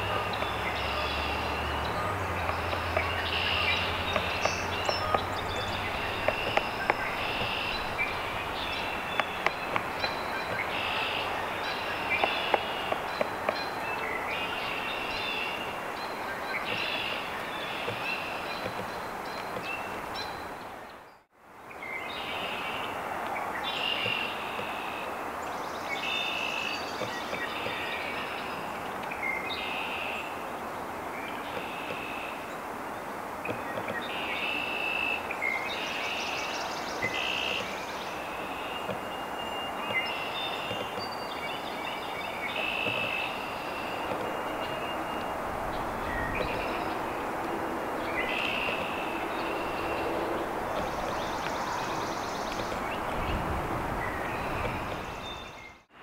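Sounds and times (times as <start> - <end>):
small birds singing: 0.0 - 55.9
steady outdoor hiss: 0.0 - 56.0
woodpecker knocking on wood: 0.1 - 10.9, 12.1 - 13.8, 17.8 - 19.8, 38.8 - 39.1, 39.8 - 41.2, 42.7 - 45.3.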